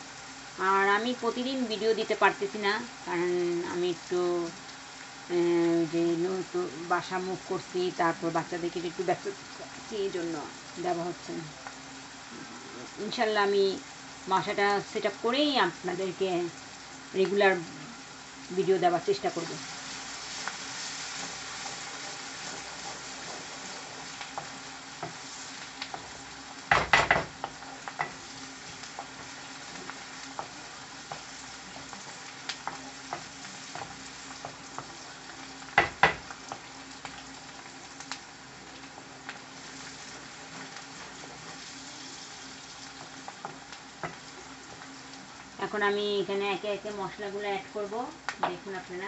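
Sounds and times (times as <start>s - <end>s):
onions sizzling in hot oil: 0.0s - 49.0s
spoon scraping a pan: 19.8s - 26.2s.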